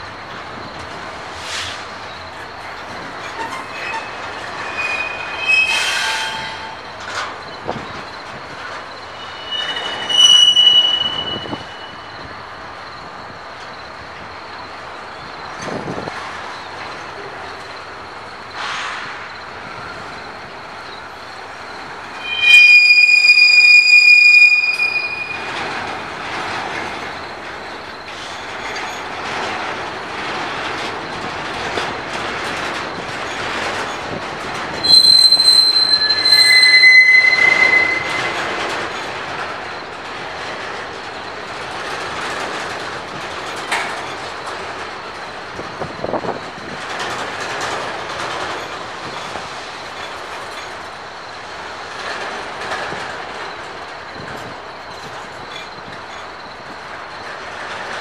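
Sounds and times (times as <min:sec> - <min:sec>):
freight train rumbling past: 0:00.0 - 0:58.0
steel wheels squealing: 0:01.4 - 0:13.1, 0:18.5 - 0:27.1, 0:32.8 - 0:40.7
train wheel clacks: 0:12.9 - 0:58.0.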